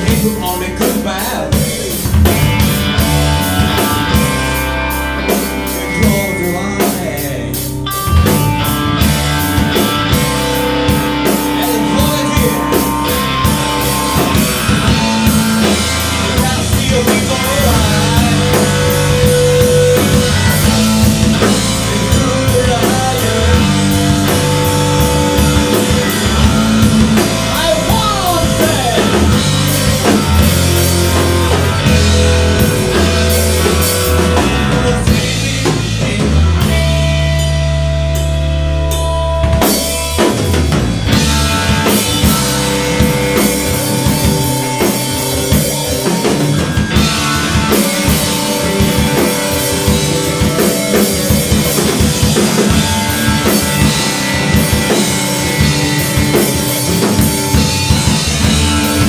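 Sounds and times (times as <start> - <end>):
live rock band playing: 0.0 - 59.0
drum hits: 1.6 - 7.2, 38.8 - 59.0.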